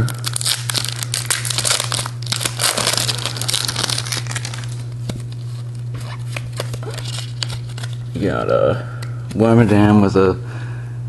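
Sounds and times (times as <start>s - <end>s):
foil wrapper tearing and crinkling: 0.0s - 8.3s
steady low hum: 0.0s - 11.0s.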